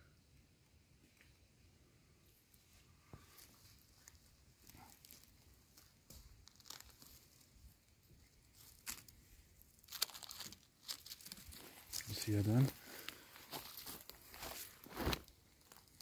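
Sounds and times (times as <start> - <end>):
dry leaves and twigs crackling: 2.5 - 16.0.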